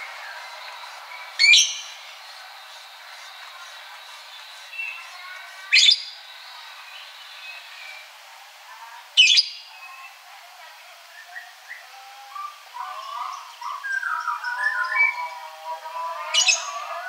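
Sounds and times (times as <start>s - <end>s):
drongo calling: 0.0s - 8.2s, 11.3s - 17.0s.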